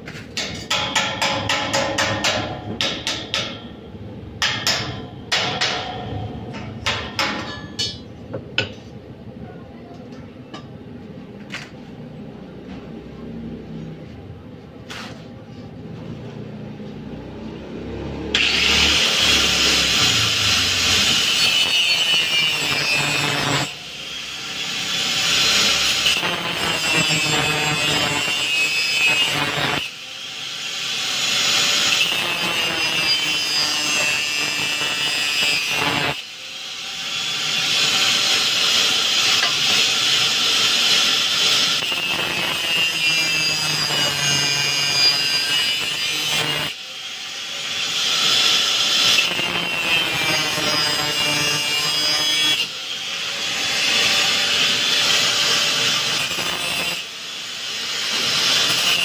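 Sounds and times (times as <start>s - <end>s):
power tool grinding steel: 18.3s - 59.0s.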